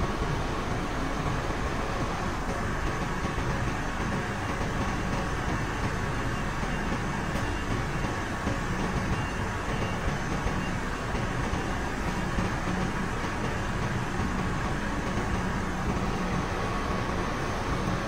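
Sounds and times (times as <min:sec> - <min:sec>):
diesel engine running: 0:00.0 - 0:18.0.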